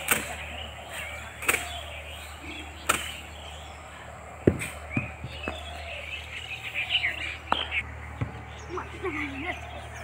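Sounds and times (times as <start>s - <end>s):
birds chirping faintly: 0.0s - 10.0s
dull thump: 4.4s - 5.6s.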